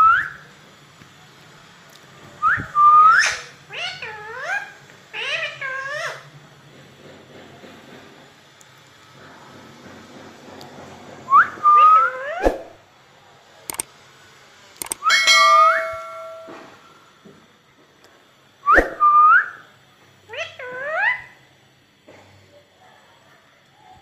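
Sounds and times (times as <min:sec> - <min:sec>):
sharp clicks: 0:13.7 - 0:13.9, 0:14.8 - 0:15.1.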